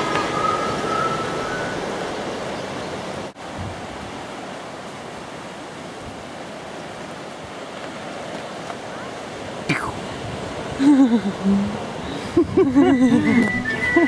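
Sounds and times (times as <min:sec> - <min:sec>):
rushing outdoor noise: 0:00.0 - 0:14.0.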